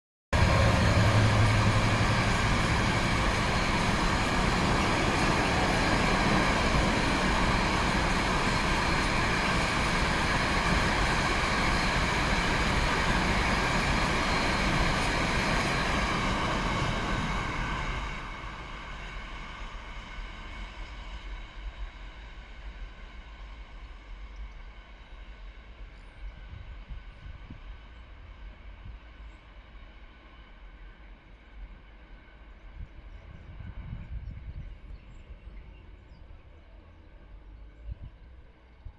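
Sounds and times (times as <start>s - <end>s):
train wagons rumbling and clattering: 0.4s - 18.2s
locomotive hum: 0.4s - 38.9s.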